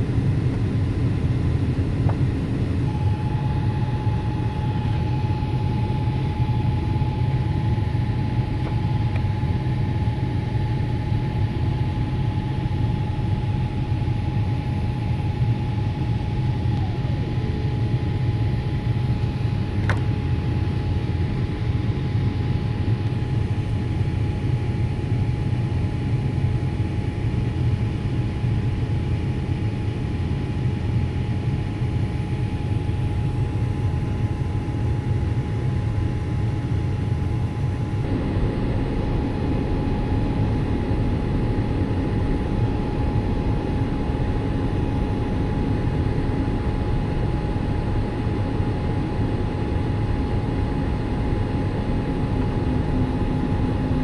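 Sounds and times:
airliner cabin roar: 0.0s - 54.0s
jet engine whine: 0.0s - 54.0s.

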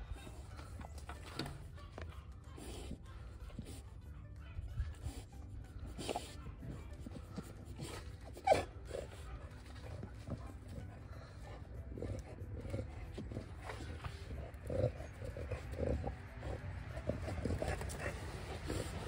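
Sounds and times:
dog yelping: 5.9s - 19.0s.

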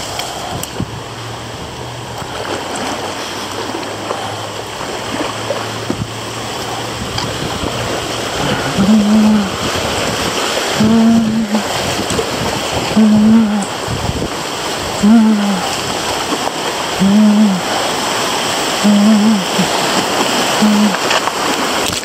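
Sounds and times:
low steady hum: 0.0s - 21.2s
river water rushing: 0.0s - 22.0s
person humming: 8.3s - 9.7s, 10.7s - 11.8s, 12.8s - 13.9s, 15.0s - 15.8s, 17.0s - 18.0s, 18.8s - 21.1s.

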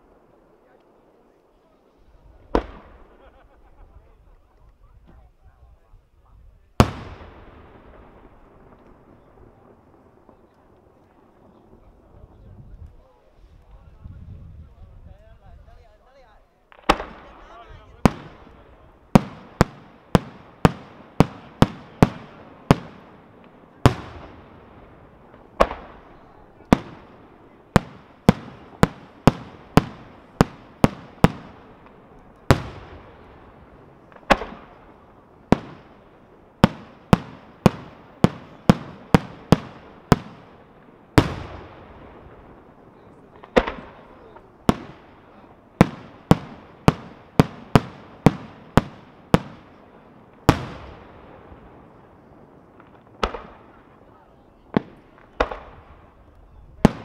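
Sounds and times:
firework shells bursting: 16.7s - 53.9s.

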